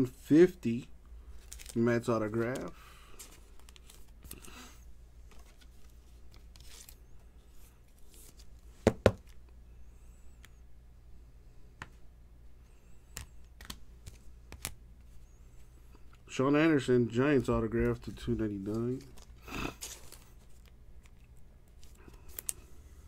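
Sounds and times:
cards rustling: 0.1s - 9.4s, 13.0s - 16.2s, 17.4s - 22.9s.

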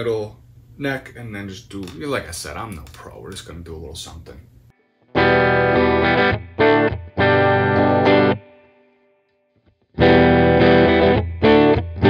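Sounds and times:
electric guitar strumming chords: 4.8s - 9.2s, 10.0s - 12.0s.

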